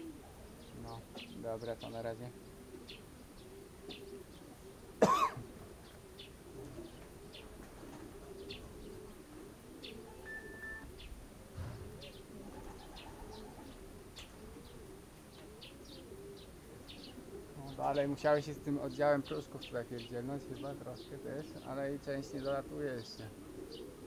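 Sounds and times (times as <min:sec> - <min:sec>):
pigeons cooing: 0:00.0 - 0:24.0
small birds chirping: 0:00.0 - 0:24.0
brief beep: 0:10.2 - 0:10.9.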